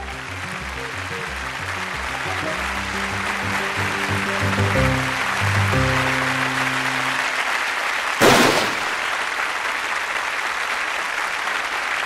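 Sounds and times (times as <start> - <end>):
music with held notes: 0.0 - 7.6
applause: 0.0 - 12.0
loud blast bang: 8.2 - 9.1.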